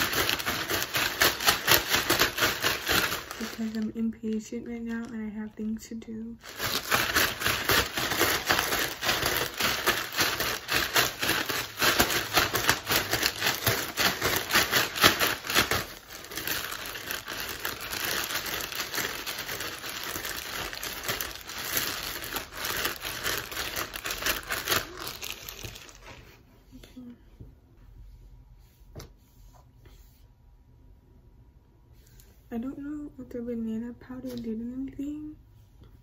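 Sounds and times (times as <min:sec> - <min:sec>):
plastic bag crinkling and flapping: 0:00.0 - 0:05.8, 0:06.4 - 0:26.3.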